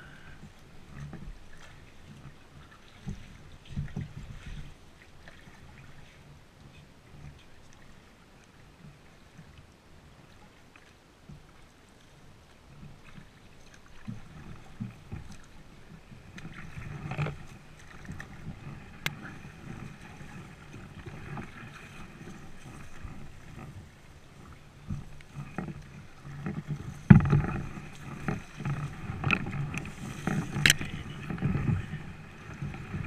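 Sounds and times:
paddle strokes in water: 0.0 - 33.0
knocks and rustles: 26.4 - 31.7.

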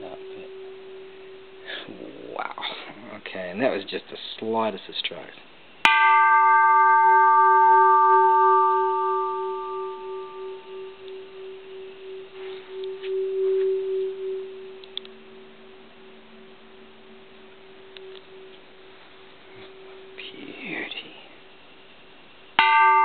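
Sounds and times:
temple bell ringing: 0.0 - 2.0, 5.9 - 20.4, 22.6 - 23.0.

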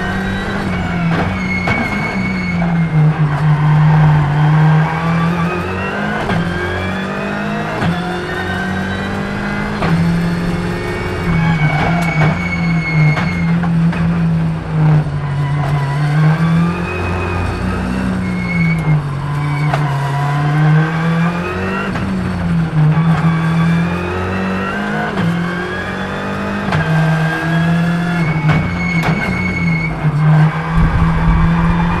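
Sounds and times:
rally car engine revving: 0.0 - 32.0.

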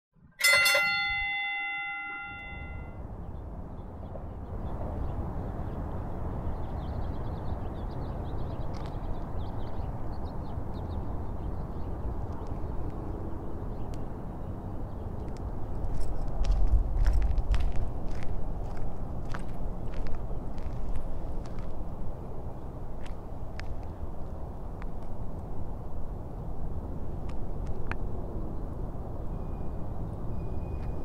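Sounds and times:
bright bell-like chime: 0.4 - 3.0.

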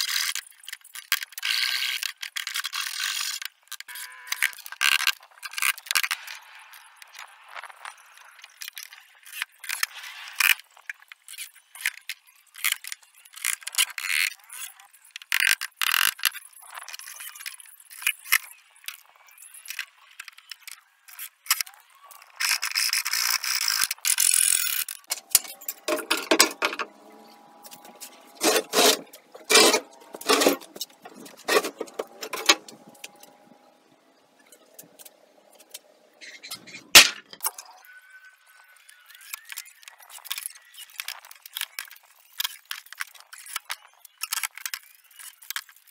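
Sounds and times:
wood boards knocking and scraping: 28.4 - 32.9.

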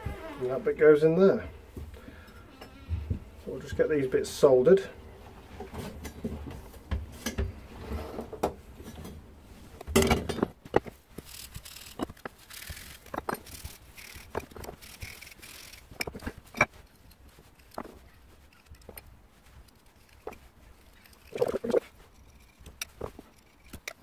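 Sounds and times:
pipes clattering: 9.8 - 24.0
wire wool scrubbing pipe: 11.1 - 24.0.

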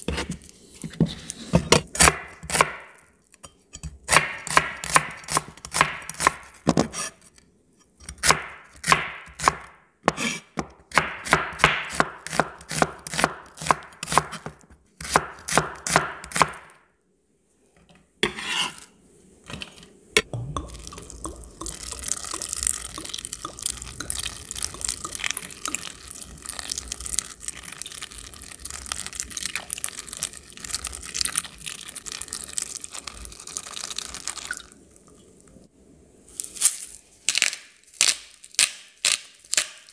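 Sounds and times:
knife chopping on wooden board: 8.2 - 16.7
tap water running into bowl: 20.6 - 26.2.

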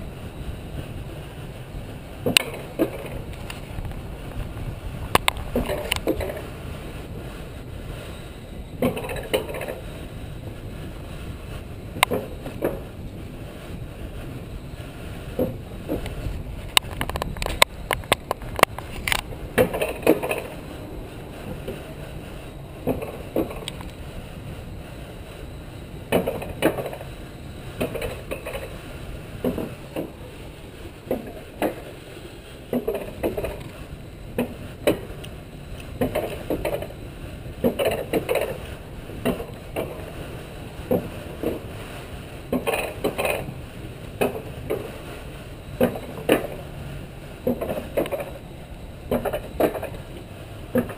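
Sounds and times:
sled wheels rumbling on metal rail: 0.0 - 50.9
sharp clacks and rattles: 2.2 - 6.5, 8.8 - 10.0, 15.3 - 24.0, 27.8 - 30.2, 34.4 - 37.0, 37.6 - 40.2, 42.5 - 43.6, 47.4 - 48.4, 49.1 - 50.1.

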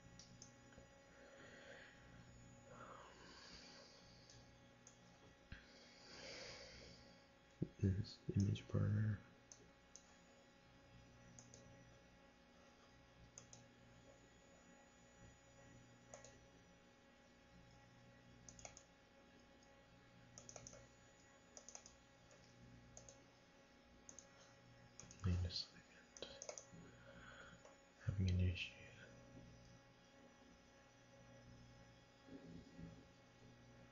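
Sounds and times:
low steady hum: 0.0 - 33.9
mouse and keyboard clicks: 20.4 - 20.8, 21.6 - 23.2.

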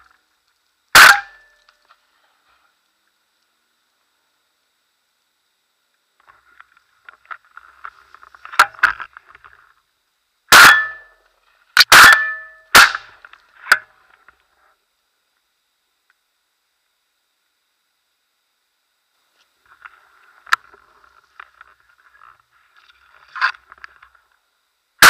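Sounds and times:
faint patter of small clicks: 0.0 - 0.8, 1.5 - 4.7, 5.8 - 10.1, 13.2 - 17.6, 19.2 - 24.5
shotgun shots: 1.0 - 1.4, 10.5 - 11.0, 11.8 - 13.2.

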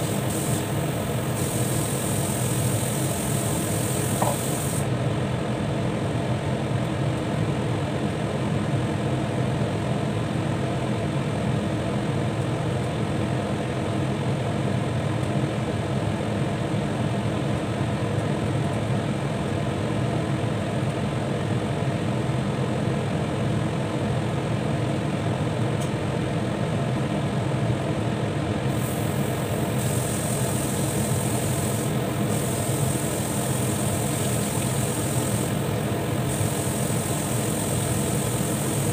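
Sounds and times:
high hiss: 0.0 - 4.9, 28.7 - 38.9.

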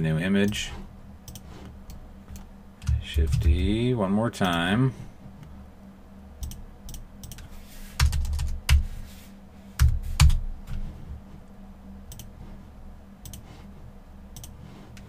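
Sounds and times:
faint low hum: 0.0 - 15.0
keyboard typing: 6.4 - 8.9.

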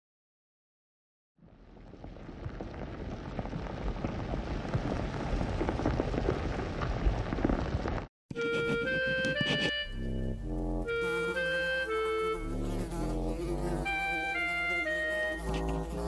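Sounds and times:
keyboard notes: 8.3 - 16.0.

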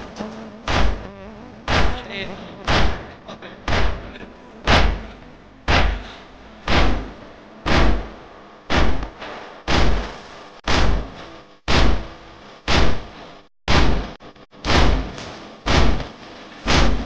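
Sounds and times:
rhythmic chest-beating thumps: 0.0 - 12.1.

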